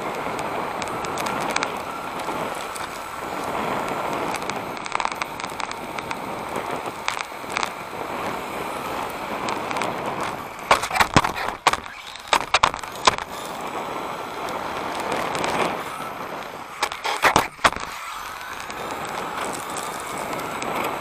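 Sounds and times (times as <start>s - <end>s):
tyre and wind rush: 9.9s - 21.0s
chassis clicks and knocks: 10.7s - 13.3s, 16.8s - 18.7s.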